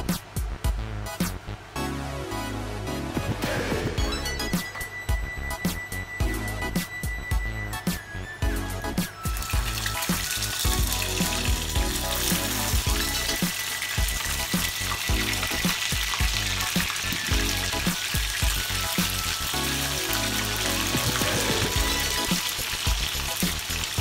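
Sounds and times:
chicken sizzling in hot oil: 9.2 - 24.0.

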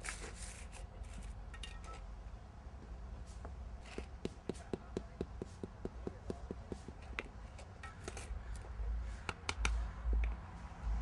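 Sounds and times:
hand tool tapping: 3.9 - 10.4.

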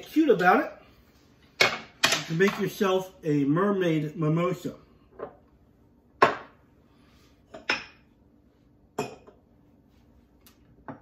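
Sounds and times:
glassware clinking on tiles: 9.0 - 9.4.

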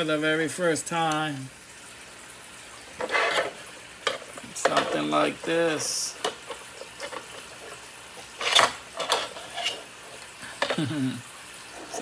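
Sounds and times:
plastic scraping rustle: 3.0 - 10.9.

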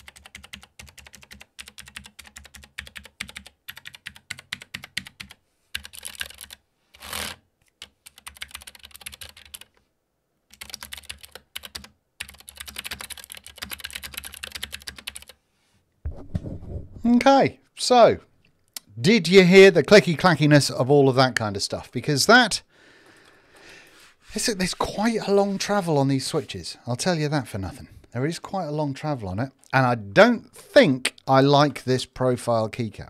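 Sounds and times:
clicky keyboard typing: 0.0 - 6.6, 7.8 - 9.8, 10.5 - 15.4.

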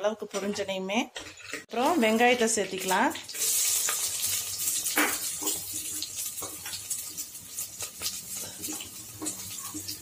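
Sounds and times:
spoon scraping a clay pot: 1.1 - 1.7
onions sizzling in oil: 1.8 - 10.0.

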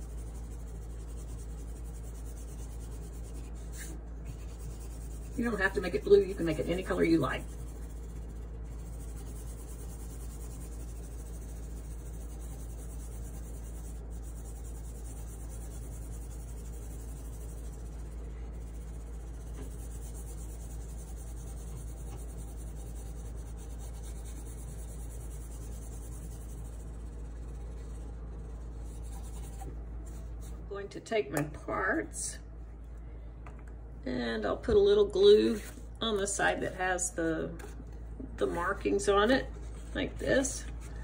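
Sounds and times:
crayon rubbing on paper: 0.0 - 30.5, 35.4 - 35.9.

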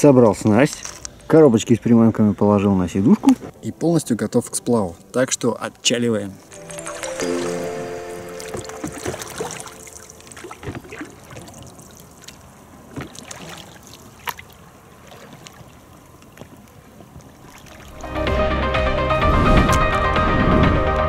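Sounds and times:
water trickling: 6.4 - 18.1
loud music: 6.5 - 8.8, 18.0 - 21.0
oars splashing in water: 8.3 - 18.0.

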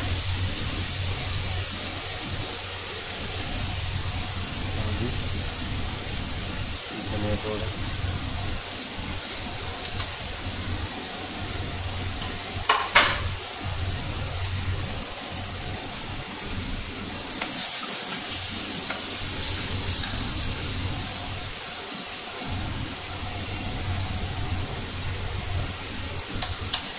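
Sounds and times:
vegetables sizzling in oil: 0.0 - 26.9.

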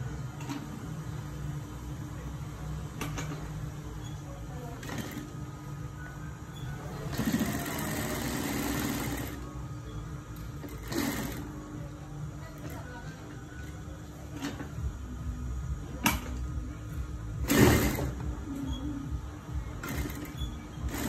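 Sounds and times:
steady low hum: 0.0 - 21.0
sewing machine stitching: 7.0 - 9.4, 10.6 - 11.5, 17.4 - 18.2, 19.8 - 21.0.

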